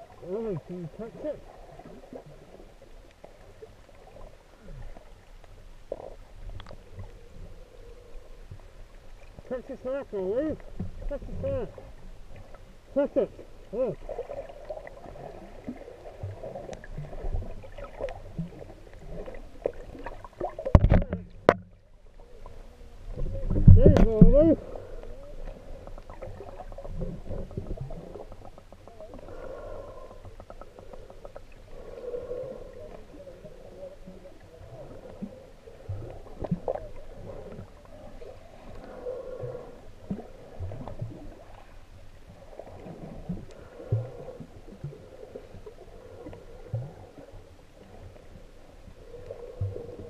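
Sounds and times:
muffled underwater water movement: 0.0s - 50.0s
dull underwater murmur: 10.5s - 41.8s
low underwater knocks: 20.6s - 21.9s.

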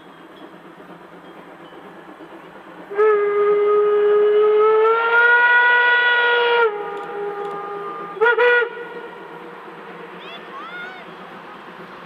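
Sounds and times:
steam whistle blowing: 2.9s - 11.0s.

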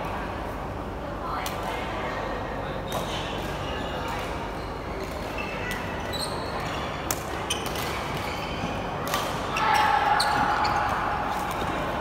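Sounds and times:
racket hitting shuttlecock: 9.0s - 9.5s.

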